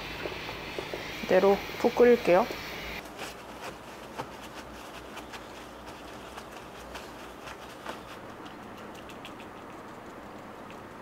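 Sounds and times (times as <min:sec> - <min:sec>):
low background hum: 0:00.0 - 0:11.0
parchment paper rustling: 0:03.0 - 0:09.3.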